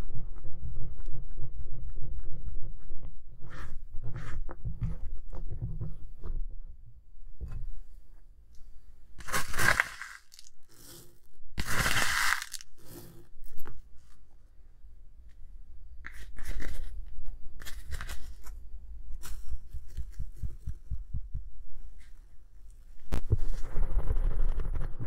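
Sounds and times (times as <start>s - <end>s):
granules poured into glass bowl: 9.2s - 13.1s.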